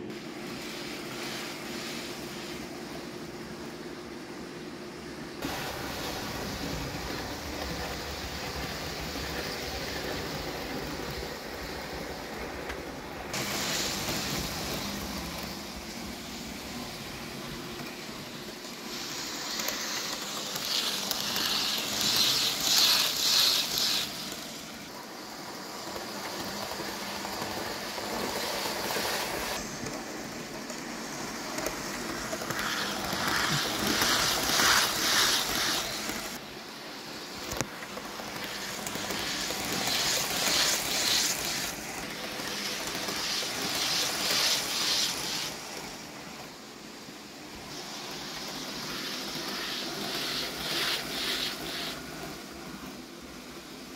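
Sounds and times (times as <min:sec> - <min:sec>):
model train motor running: 0:16.8 - 0:36.4, 0:37.2 - 0:46.4, 0:47.7 - 0:52.4
model train wheels clattering: 0:18.9 - 0:24.8, 0:30.6 - 0:36.4, 0:37.3 - 0:46.0.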